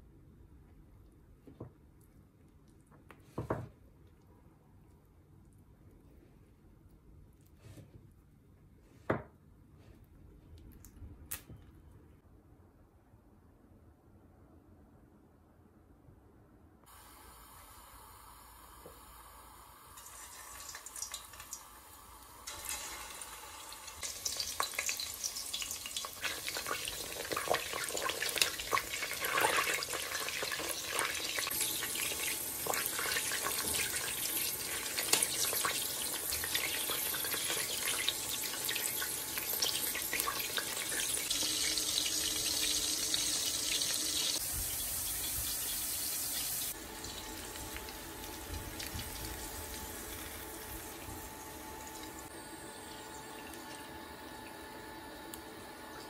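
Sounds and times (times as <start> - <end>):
food sizzling in hot oil: 17.0 - 52.3.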